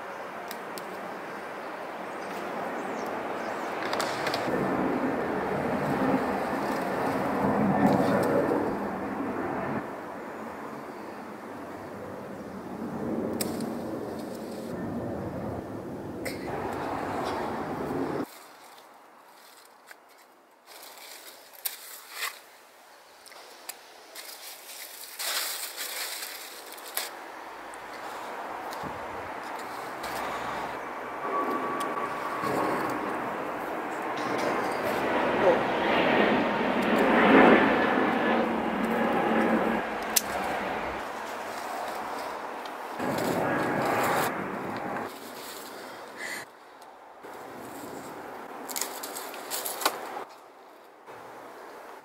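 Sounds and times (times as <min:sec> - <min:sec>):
outdoor background rumble: 0:02.7 - 0:18.3, 0:26.2 - 0:50.3
leaves and vines rustling: 0:05.5 - 0:09.0, 0:13.3 - 0:14.8, 0:16.4 - 0:35.0, 0:38.9 - 0:51.9
scissors snipping: 0:40.0 - 0:40.5.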